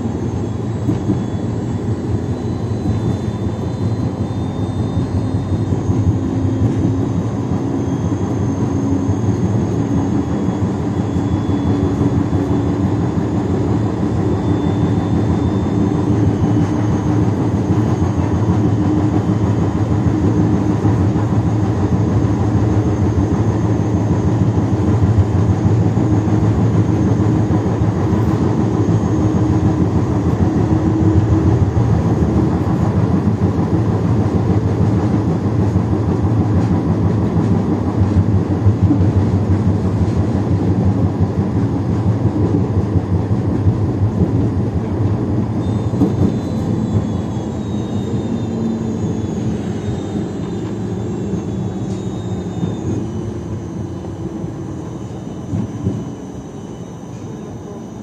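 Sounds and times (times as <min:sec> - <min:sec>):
tram wheels rumbling on rail: 0:00.0 - 0:58.0
rising traction motor tone: 0:45.5 - 0:58.0.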